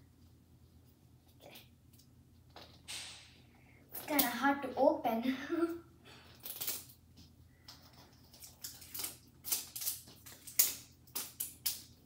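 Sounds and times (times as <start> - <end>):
sharp plastic crackles: 6.3 - 7.0, 7.6 - 12.0
plastic wrapping crinkling: 7.6 - 12.0.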